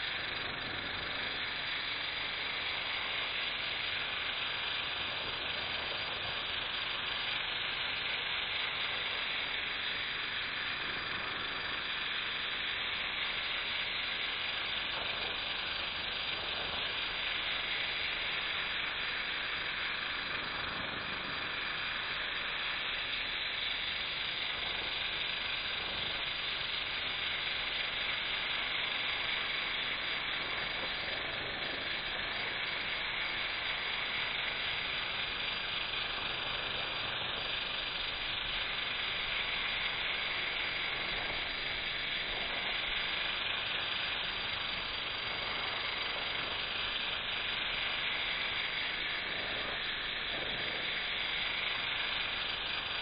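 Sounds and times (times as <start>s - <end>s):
pressure washer spraying water: 36.2s - 53.0s.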